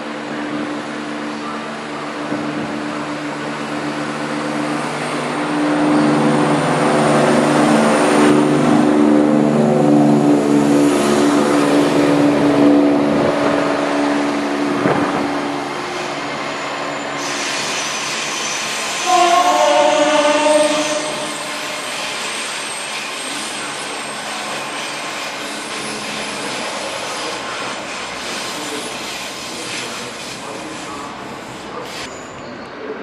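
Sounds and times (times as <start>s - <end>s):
diesel train passing: 0.0s - 33.0s
train horn tones: 19.0s - 22.1s.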